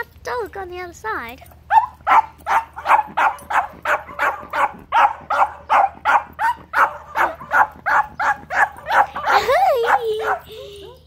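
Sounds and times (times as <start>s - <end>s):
small dog barking rapidly: 1.7s - 10.5s.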